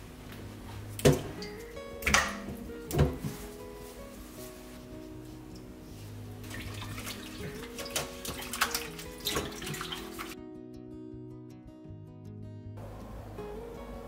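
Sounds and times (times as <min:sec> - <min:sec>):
soft background music: 0:00.0 - 0:14.0
water splashing in a steel bowl: 0:06.4 - 0:10.4.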